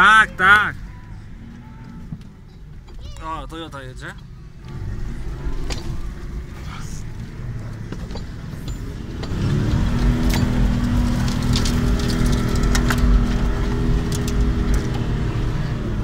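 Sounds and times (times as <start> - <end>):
vehicle engine revving under load: 4.1 - 16.0.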